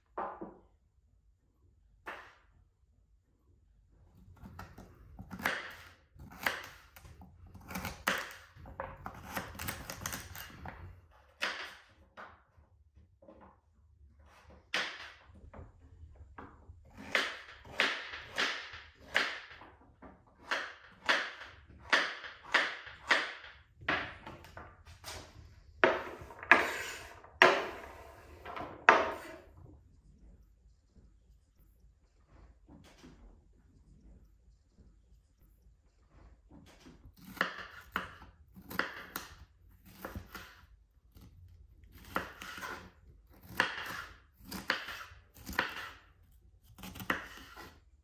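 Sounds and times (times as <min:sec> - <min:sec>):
knife chopping on wooden board: 0:04.4 - 0:11.9, 0:16.8 - 0:19.7, 0:20.4 - 0:24.6, 0:25.8 - 0:29.4, 0:37.2 - 0:41.3, 0:41.9 - 0:46.0, 0:46.6 - 0:47.8.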